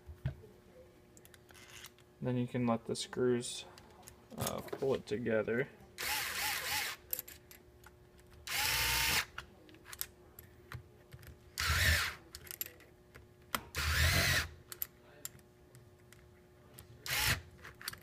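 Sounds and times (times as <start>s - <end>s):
electric screwdriver running: 6.0s - 7.0s, 8.5s - 9.3s, 11.6s - 12.2s, 13.8s - 14.5s, 17.1s - 17.4s.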